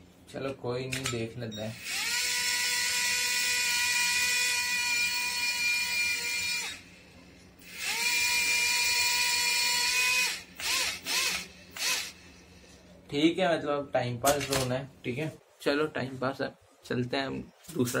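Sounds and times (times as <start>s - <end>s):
toy drone propellers whining: 1.8s - 6.8s, 7.7s - 12.2s.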